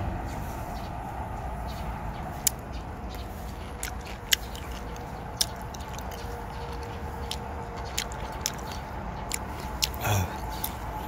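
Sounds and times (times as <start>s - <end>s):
low background noise: 0.0s - 11.0s
mouth clicks chewing: 2.3s - 11.0s.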